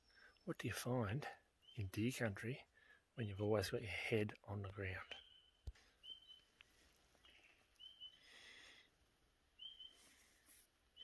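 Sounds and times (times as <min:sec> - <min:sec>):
short high bird chirps: 0:05.2 - 0:06.5, 0:07.2 - 0:08.2, 0:09.6 - 0:10.2.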